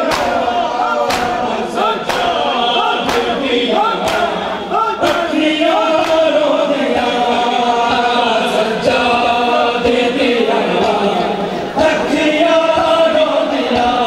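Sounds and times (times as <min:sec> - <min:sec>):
crowd of men chanting: 0:00.0 - 0:14.0
hands slapping bare chests: 0:00.1 - 0:00.4, 0:01.0 - 0:01.5, 0:02.1 - 0:02.4, 0:03.0 - 0:03.4, 0:04.0 - 0:04.4, 0:06.0 - 0:06.3.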